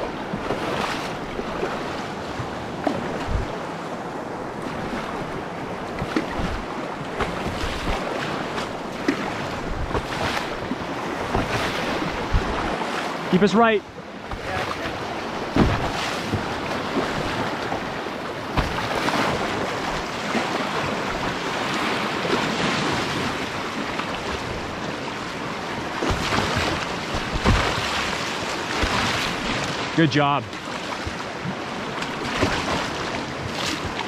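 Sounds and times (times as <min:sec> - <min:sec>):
river water rushing: 0:00.0 - 0:34.0
wind buffeting microphone: 0:01.4 - 0:12.9.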